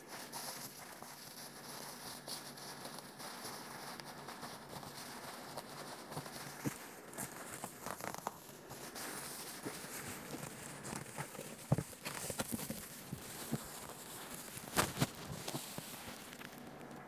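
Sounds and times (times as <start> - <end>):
plastic wrapping crinkling: 0.0 - 17.0.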